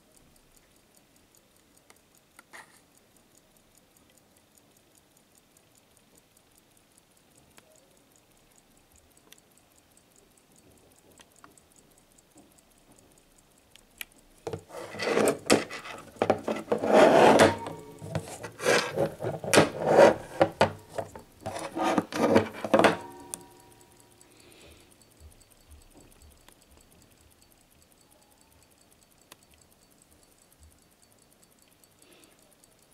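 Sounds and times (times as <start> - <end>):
mechanical watch ticking: 0.0 - 32.9
rubbing and scraping on wood: 14.5 - 23.2.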